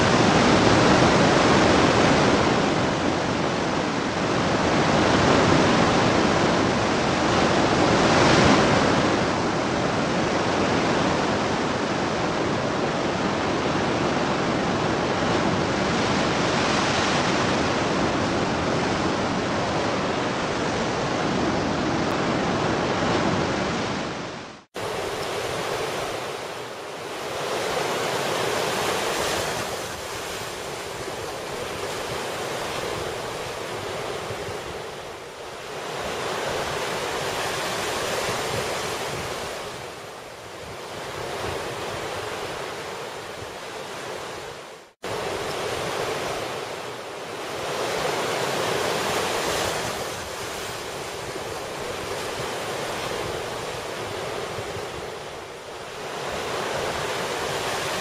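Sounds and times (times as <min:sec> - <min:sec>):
surf washing over rocks: 0:12.6 - 0:58.0.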